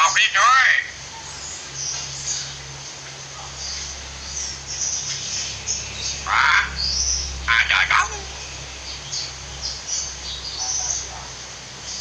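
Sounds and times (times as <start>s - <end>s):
low steady hum: 0.0s - 12.0s
myna chirping and calling: 3.4s - 12.0s.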